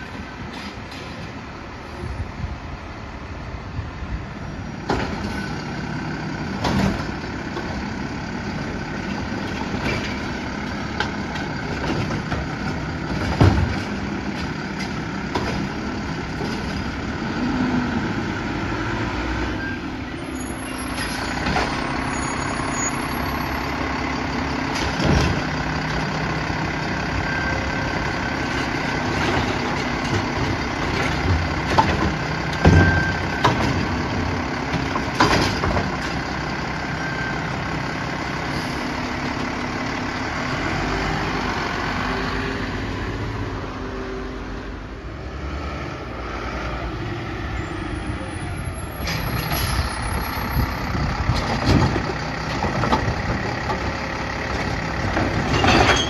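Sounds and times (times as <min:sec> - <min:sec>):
garbage truck engine running: 0:02.7 - 0:45.2, 0:46.0 - 0:56.0
cart banging on hopper: 0:06.5 - 0:07.8, 0:09.1 - 0:16.9, 0:28.4 - 0:36.2, 0:49.0 - 0:54.0, 0:54.6 - 0:56.0.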